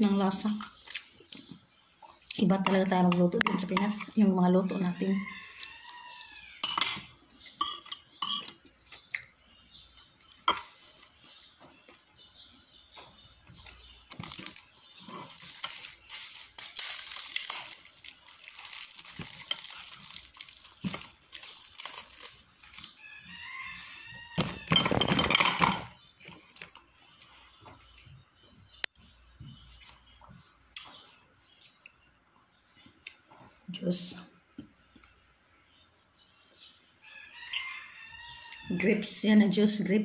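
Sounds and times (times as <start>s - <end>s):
plastic and cardboard crinkling: 13.8s - 23.0s.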